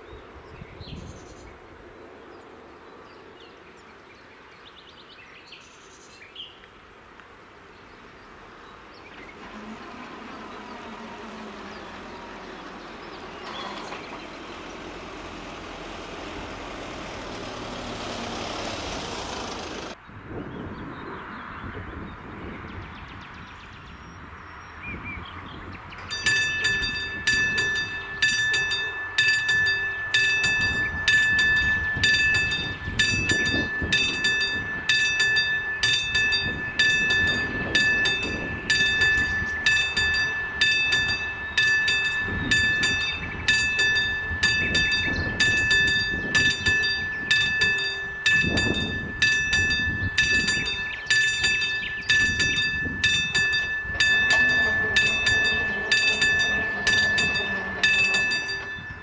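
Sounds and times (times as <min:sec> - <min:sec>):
level crossing warning bell: 0:09.2 - 0:17.9, 0:26.0 - 0:59.0.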